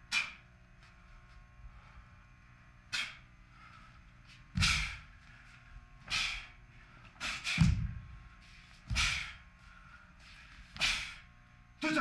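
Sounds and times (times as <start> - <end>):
bare feet landing on floor: 4.5 - 5.1, 7.3 - 8.2, 8.8 - 9.4
uniform snapping with kicks: 4.6 - 5.0, 7.2 - 8.0.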